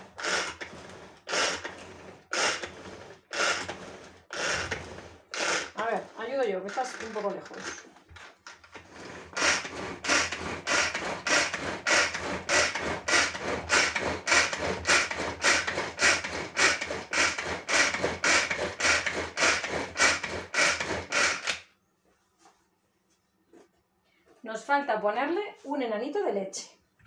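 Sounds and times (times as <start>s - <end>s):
pull-cord chopper whirring: 0.0s - 21.6s.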